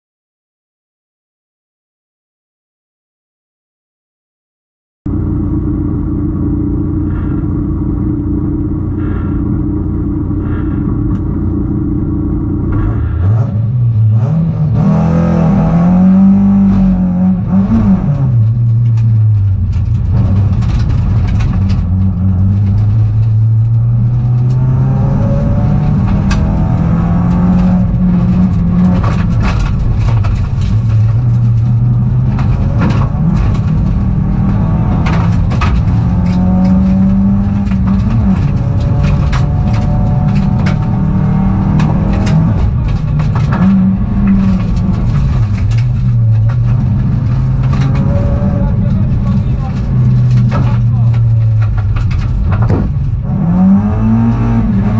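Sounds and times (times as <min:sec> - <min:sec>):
rally car engine revving: 0:05.1 - 0:54.9
sharp knocks: 0:50.5 - 0:53.1.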